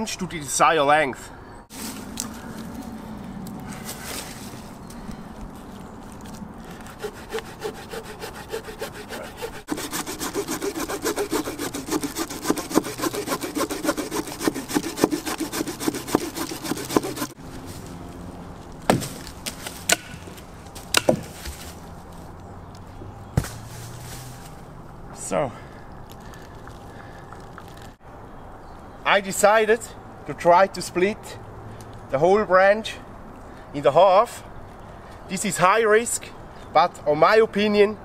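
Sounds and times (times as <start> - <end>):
saw blade sawing wood: 6.7 - 17.4
sharp knocks: 20.9 - 21.5.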